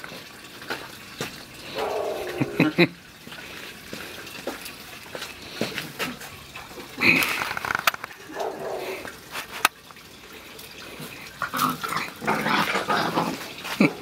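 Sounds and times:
puppies growling and yapping: 1.7s - 2.9s, 8.2s - 9.1s, 11.4s - 14.0s.

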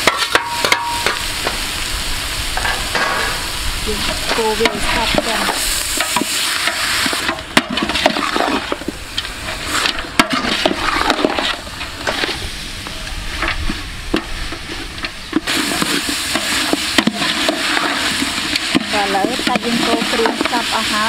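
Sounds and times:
spatula scraping metal pot: 3.9s - 12.5s, 13.4s - 21.0s.

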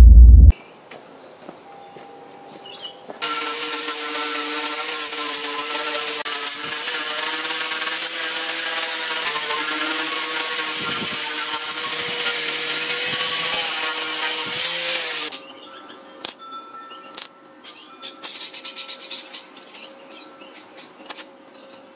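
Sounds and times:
angle grinder grinding steel: 3.2s - 15.3s.

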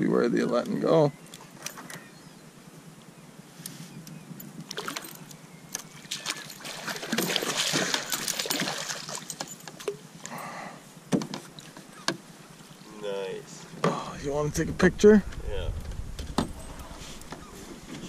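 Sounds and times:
water splashing against canoe: 6.0s - 10.0s.

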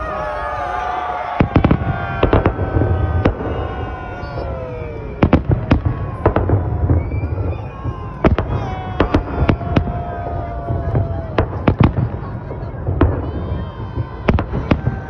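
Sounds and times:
fireworks bangs: 0.0s - 15.0s
descending whistling tones: 3.0s - 9.2s.

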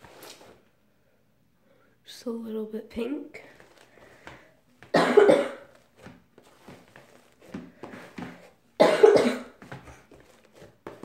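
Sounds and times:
person coughing: 4.9s - 5.7s, 8.8s - 9.6s.

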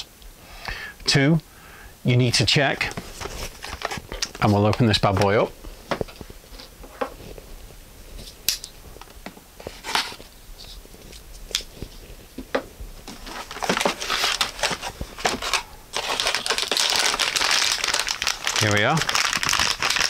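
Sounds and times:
metallic plastic bag crinkling: 13.0s - 20.0s.

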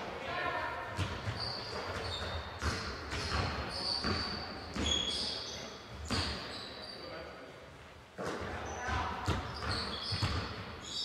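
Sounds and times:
ball bouncing on wooden floor: 1.0s - 5.0s, 8.2s - 10.6s
shoe squeaks: 1.2s - 7.2s, 8.6s - 11.0s.

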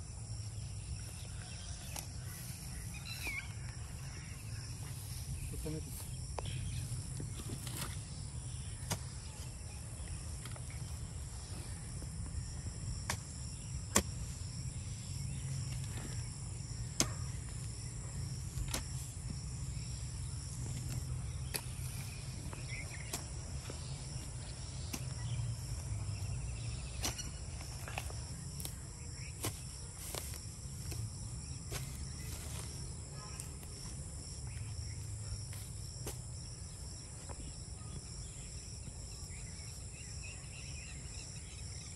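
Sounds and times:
insects chorus: 0.0s - 41.9s
hoe chopping and scraping soil: 7.1s - 10.8s, 12.9s - 14.8s, 15.6s - 19.8s, 20.5s - 33.8s, 35.4s - 36.4s.

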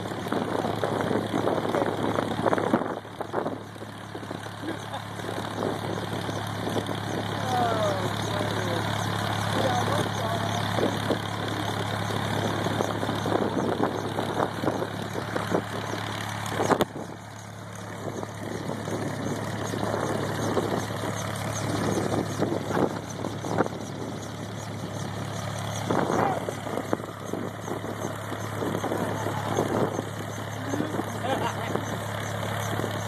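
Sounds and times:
gusty wind noise: 0.0s - 4.5s, 10.6s - 31.9s
helicopter engine and rotor idling: 0.0s - 33.0s.

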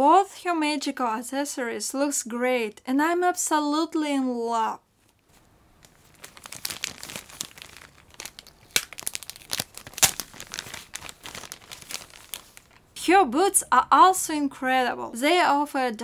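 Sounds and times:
plastic bag crinkling: 5.3s - 12.9s.

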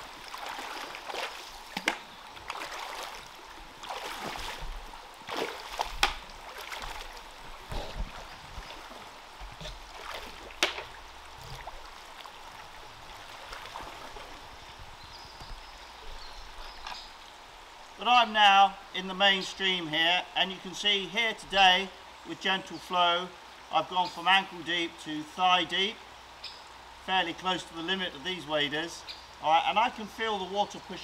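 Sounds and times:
legs splashing through water: 0.0s - 15.7s
stream flowing: 0.0s - 31.0s.

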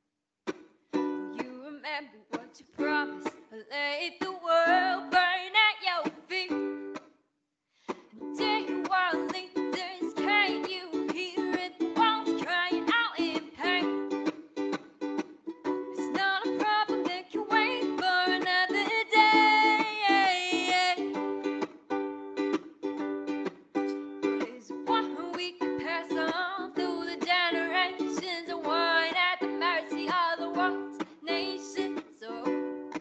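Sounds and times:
strummed plucked strings: 7.9s - 33.0s.

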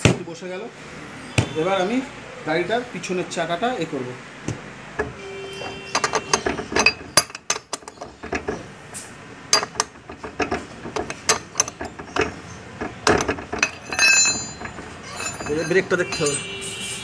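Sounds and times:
spanner clinking on nut: 5.0s - 8.7s, 9.5s - 16.5s.

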